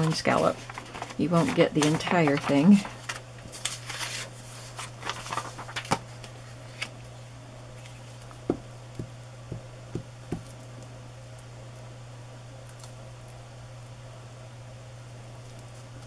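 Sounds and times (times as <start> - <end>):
paper rustling: 0.0 - 6.9
steady low hum: 0.0 - 16.0.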